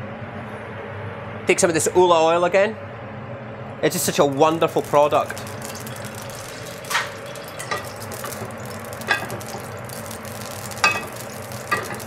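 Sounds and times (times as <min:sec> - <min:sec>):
oil sizzling in frying pan: 0:03.9 - 0:12.0
pan and utensil clinks: 0:05.3 - 0:12.0.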